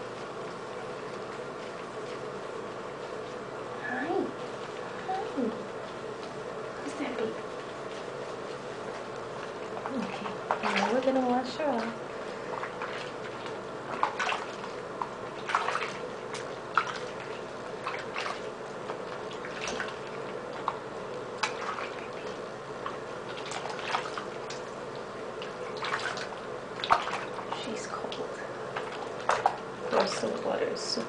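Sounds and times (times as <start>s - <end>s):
water splashing in a sink: 8.9s - 31.0s.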